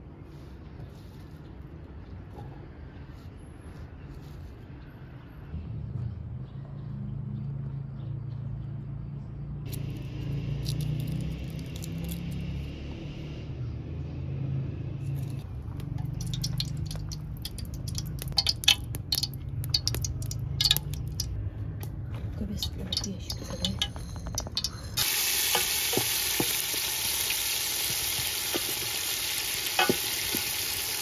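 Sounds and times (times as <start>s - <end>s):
kitchen utensils clicking: 22.6s - 25.7s.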